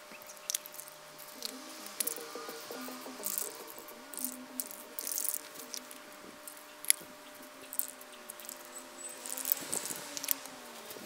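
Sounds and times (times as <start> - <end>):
faint background music: 0.0 - 11.0
spray paint can hissing: 0.8 - 6.0, 7.7 - 11.0.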